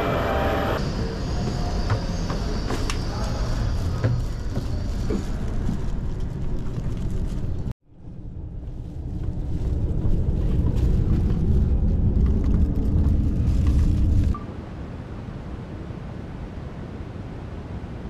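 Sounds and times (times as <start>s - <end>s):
train carriage rumble: 0.0s - 14.4s.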